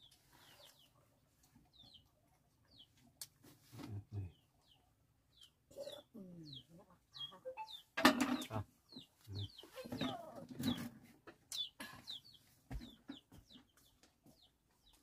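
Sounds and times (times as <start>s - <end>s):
chicks peeping: 0.0s - 3.1s, 3.7s - 15.0s
chicken clucks: 5.4s - 15.0s.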